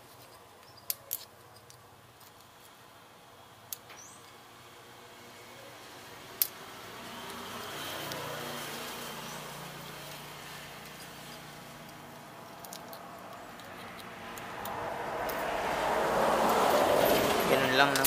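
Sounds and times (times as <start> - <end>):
vehicle passing by: 5.1 - 18.0
small clicks: 10.8 - 15.5.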